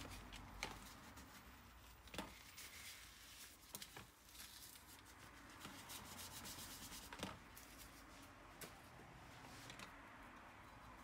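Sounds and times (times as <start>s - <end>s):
tissue rubbing: 0.0s - 8.3s.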